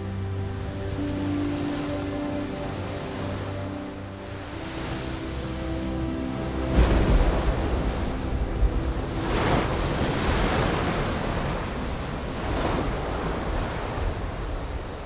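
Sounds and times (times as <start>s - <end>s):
surf crashing against rocks: 6.7s - 15.0s.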